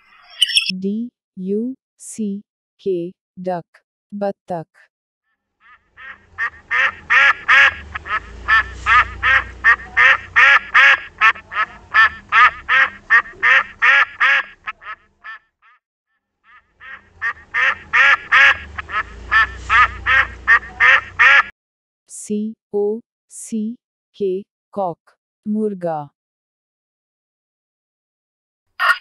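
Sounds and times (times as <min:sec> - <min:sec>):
duck quacking: 0:05.6 - 0:15.8, 0:16.4 - 0:21.5, 0:28.8 - 0:29.0.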